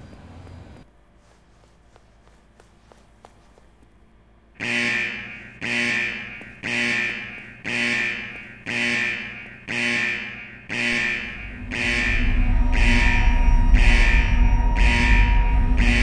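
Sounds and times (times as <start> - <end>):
alarm-like ringing tone: 4.7 - 16.0.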